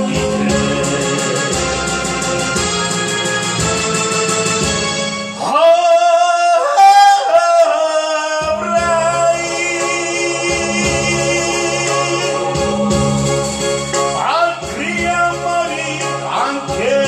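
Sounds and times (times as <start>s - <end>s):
man singing into a microphone: 0.0s - 2.6s, 5.4s - 13.3s, 14.1s - 17.0s
recorded musical accompaniment: 0.0s - 17.0s.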